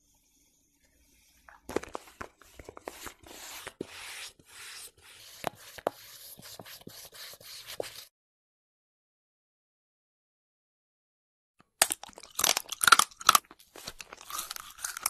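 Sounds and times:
spoon scooping crunchy sand: 0:01.5 - 0:08.0, 0:12.0 - 0:15.0.

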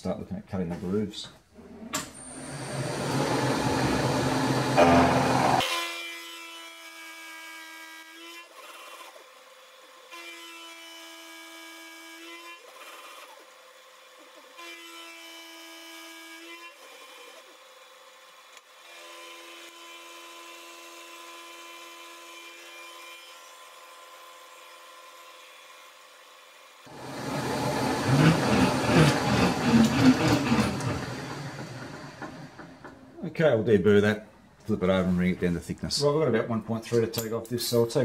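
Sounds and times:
pitched whine: 0:02.2 - 0:05.7, 0:26.9 - 0:33.2
milling machine cutting metal: 0:02.2 - 0:05.9, 0:26.9 - 0:33.1.

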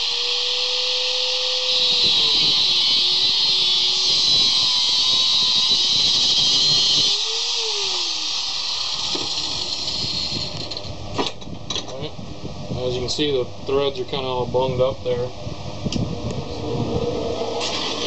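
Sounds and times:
angle grinder cutting metal: 0:00.0 - 0:10.9, 0:17.4 - 0:18.0
grinder motor spinning down: 0:00.0 - 0:10.9, 0:16.1 - 0:18.0.

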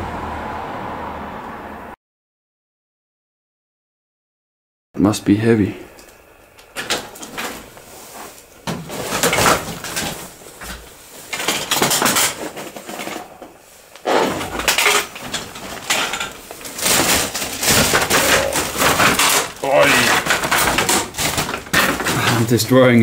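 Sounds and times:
debris clattering: 0:06.6 - 0:23.0.

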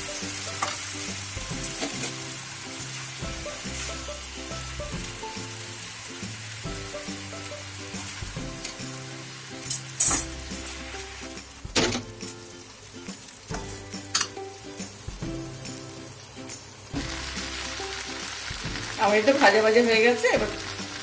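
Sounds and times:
utensils knocking on a wok: 0:00.0 - 0:02.2, 0:13.5 - 0:15.5
background music: 0:00.0 - 0:21.0
noodles sizzling in a wok: 0:00.0 - 0:21.0.

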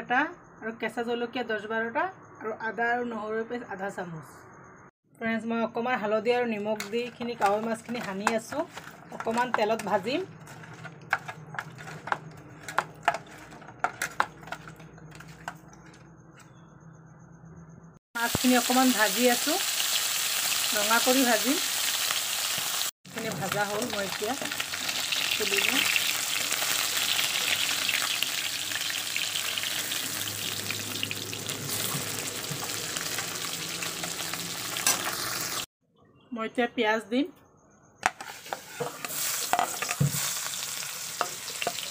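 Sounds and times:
metal ladle scraping a pan: 0:06.5 - 0:16.0, 0:38.0 - 0:41.9
fish frying in hot oil: 0:18.2 - 0:35.7, 0:39.1 - 0:41.9.

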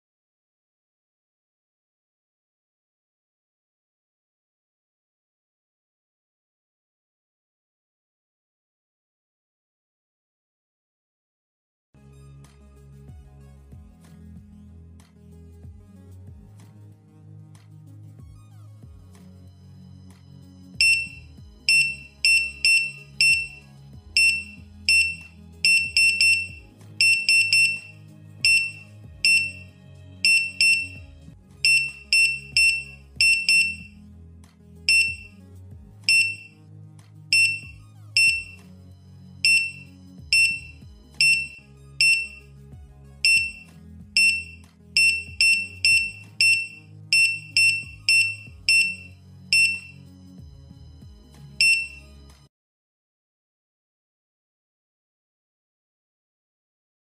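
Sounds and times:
soft background music: 0:12.0 - 0:52.5
high-pitched touch screen beeps: 0:20.8 - 0:31.0, 0:31.6 - 0:33.9, 0:34.9 - 0:35.4, 0:36.1 - 0:36.5, 0:37.3 - 0:38.6, 0:39.4 - 0:42.5, 0:43.2 - 0:50.0, 0:51.6 - 0:52.1.

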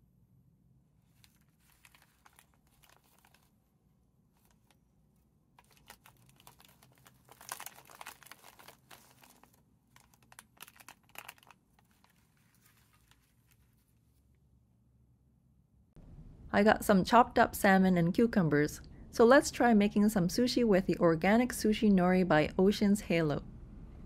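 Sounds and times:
nori sheets crackling: 0:05.6 - 0:14.1.

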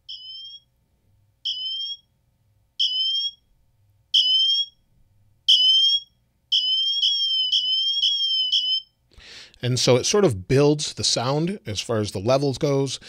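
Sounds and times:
high-pitched emergency siren tones: 0:04.2 - 0:04.7, 0:05.5 - 0:08.9.

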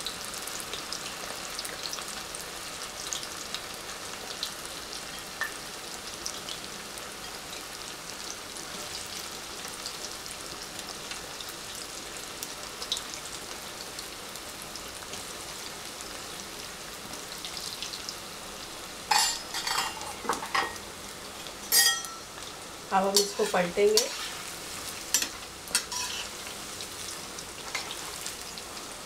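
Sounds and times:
deep-frying sizzle and crackles: 0:00.0 - 0:29.0.

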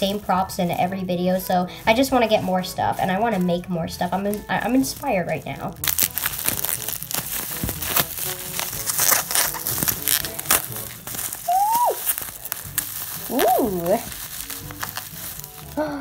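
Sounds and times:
bubble wrap crinkling: 0:00.0 - 0:16.0
faint background music: 0:00.0 - 0:16.0
person saying ooh: 0:11.5 - 0:12.0.

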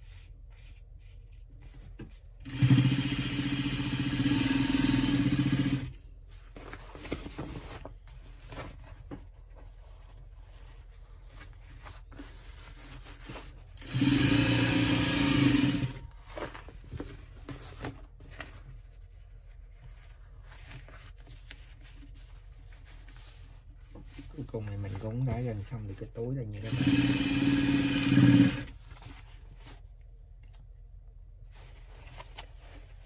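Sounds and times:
sewing machine stitching: 0:02.4 - 0:05.9, 0:13.8 - 0:16.1, 0:26.6 - 0:28.8.

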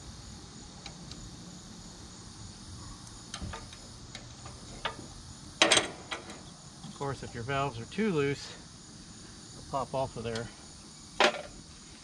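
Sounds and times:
crickets chirping: 0:00.0 - 0:12.0
metal clank: 0:04.8 - 0:06.4.

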